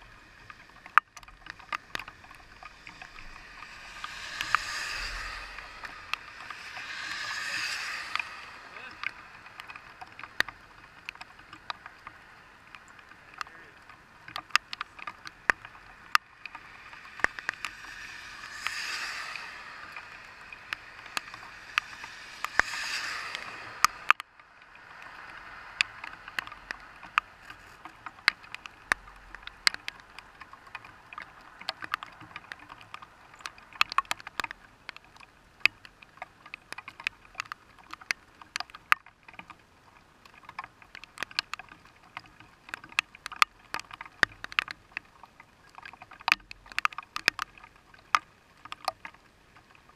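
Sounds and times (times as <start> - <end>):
rain on car windshield: 0.0 - 49.9
rushing noise: 1.5 - 10.2.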